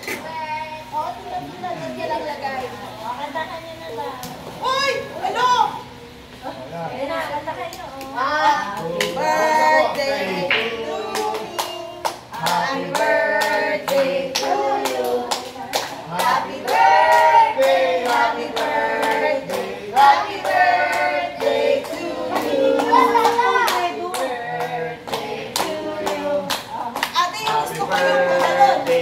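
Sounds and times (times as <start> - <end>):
voices singing together: 8.2 - 29.0
hand clapping: 10.5 - 19.6, 22.3 - 29.0.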